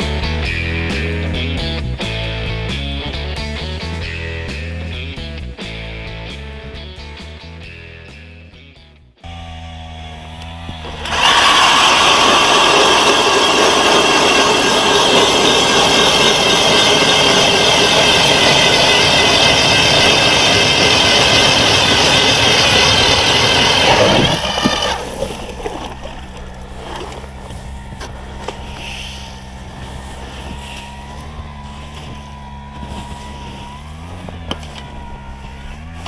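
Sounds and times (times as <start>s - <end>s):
power ice auger drilling: 10.4s - 36.0s.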